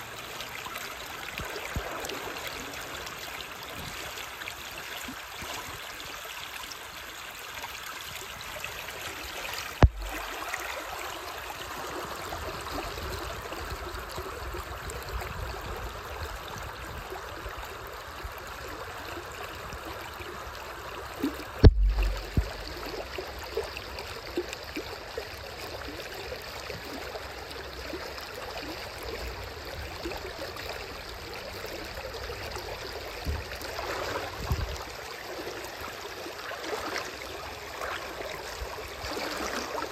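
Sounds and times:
river water babbling over stones: 0:00.0 - 0:39.9
sharp thump with low rumble: 0:09.8 - 0:10.3, 0:21.6 - 0:23.1.

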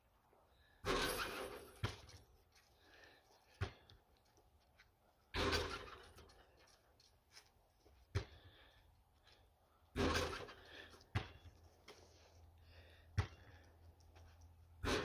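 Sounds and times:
basketball hitting rim and backboard: 0:00.8 - 0:02.2, 0:05.3 - 0:06.1, 0:09.9 - 0:11.5, 0:14.8 - 0:15.0
ball bouncing on asphalt: 0:00.8 - 0:02.5, 0:03.4 - 0:04.1, 0:08.0 - 0:08.6, 0:09.9 - 0:11.7, 0:13.0 - 0:15.0.

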